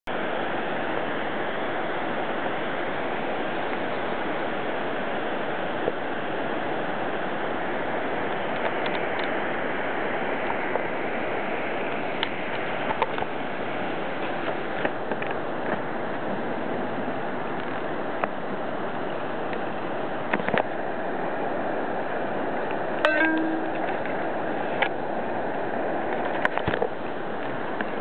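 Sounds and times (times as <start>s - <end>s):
river water rushing: 0.1s - 26.2s.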